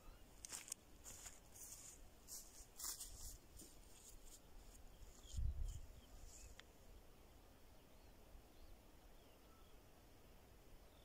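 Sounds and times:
footsteps in grass: 0.4 - 6.6
rustling in grass: 0.4 - 6.8.

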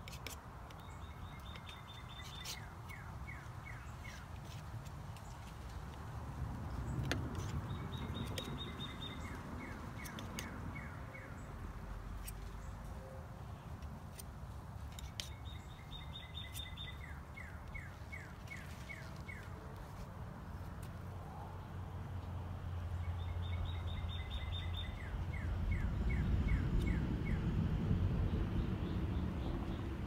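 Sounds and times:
songbird singing: 0.0 - 30.0
low outdoor rumble: 18.8 - 30.0.

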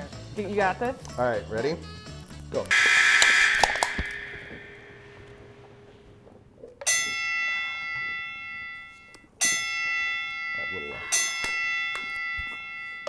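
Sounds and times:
bell chime: 6.9 - 13.0.

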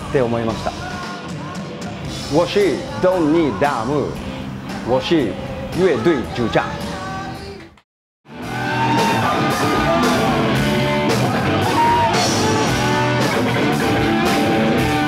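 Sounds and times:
person singing lead vocal: 0.5 - 4.2, 5.1 - 7.8, 11.1 - 13.5
rock band playing: 8.3 - 15.0
steady drum beat: 8.4 - 15.0.

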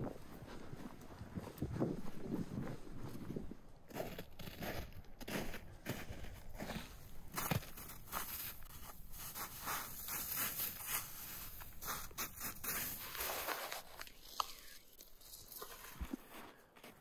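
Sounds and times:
hands scraping snow: 7.4 - 16.3.

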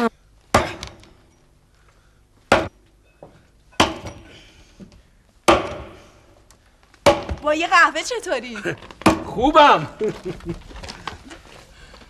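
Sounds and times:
axe chopping into log: 2.5 - 2.7, 5.5 - 6.0, 7.0 - 7.4.

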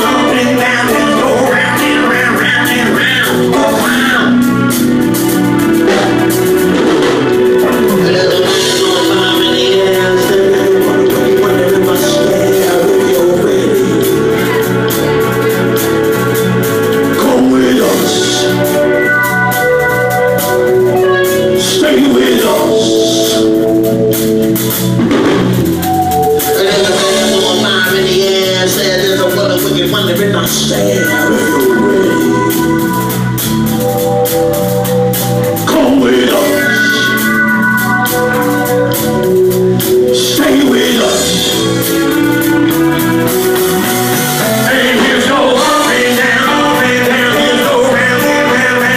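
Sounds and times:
person singing: 0.0 - 24.8, 25.8 - 48.9
bass line: 0.0 - 48.9
held keyboard chords: 0.0 - 48.9
steady drum beat: 0.0 - 48.9.

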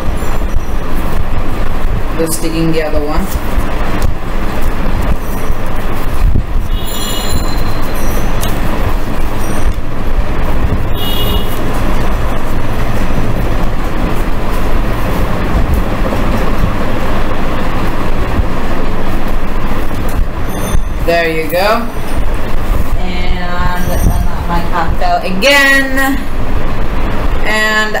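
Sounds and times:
loud steady rumbling: 0.0 - 28.0
high squeaks: 6.7 - 8.7, 9.3 - 9.9, 20.4 - 24.9.

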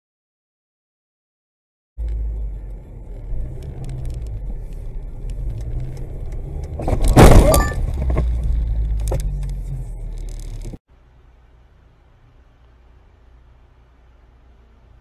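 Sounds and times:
car rumble inside cabin: 2.0 - 15.0
car crash crunching: 6.8 - 8.5.

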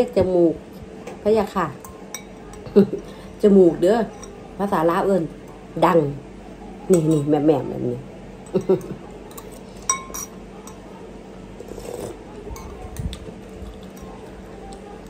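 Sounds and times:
cutlery clinking on glass bowl: 8.4 - 10.8.

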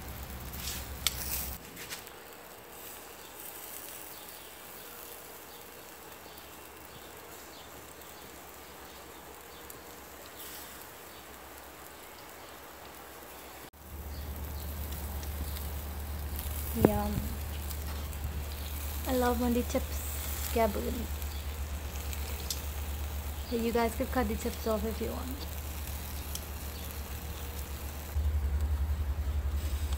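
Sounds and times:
chicken wings sizzling on grill: 0.0 - 29.9
low rumble: 13.8 - 29.9.

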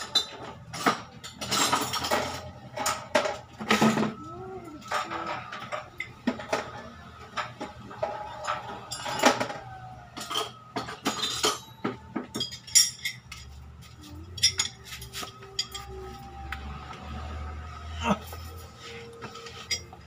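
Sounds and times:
metal hand tools clinking: 10.1 - 13.5, 14.2 - 16.0, 19.4 - 20.0.

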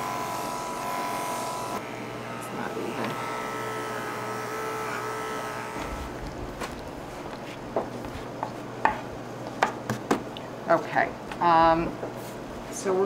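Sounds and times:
electric clippers running: 0.0 - 7.4.

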